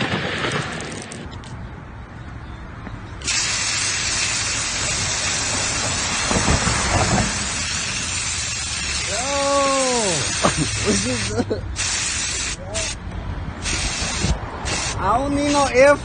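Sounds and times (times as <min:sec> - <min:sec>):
aerosol spray hissing: 0:03.3 - 0:06.6, 0:07.2 - 0:13.0, 0:13.6 - 0:15.8
short cry: 0:09.0 - 0:10.5.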